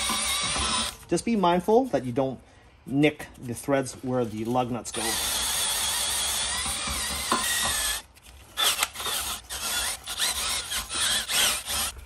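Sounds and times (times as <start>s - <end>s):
wire brush drill scrubbing metal: 4.3s - 8.0s, 8.6s - 12.0s.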